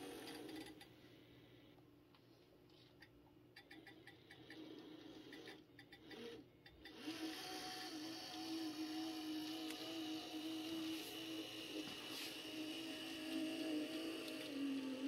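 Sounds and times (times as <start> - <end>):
electric motor humming: 6.9 - 15.0.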